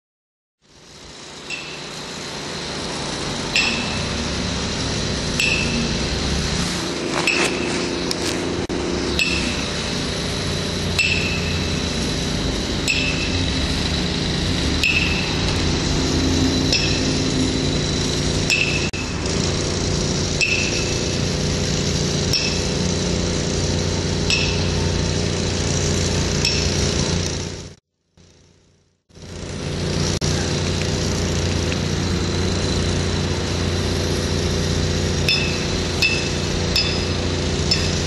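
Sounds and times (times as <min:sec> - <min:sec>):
mechanical hum: 0:00.6 - 0:38.0
hammer striking metal: 0:01.4 - 0:02.2, 0:03.4 - 0:06.4, 0:07.0 - 0:19.4, 0:20.3 - 0:21.4, 0:22.2 - 0:23.2, 0:24.1 - 0:25.1, 0:26.2 - 0:26.9, 0:35.0 - 0:38.0.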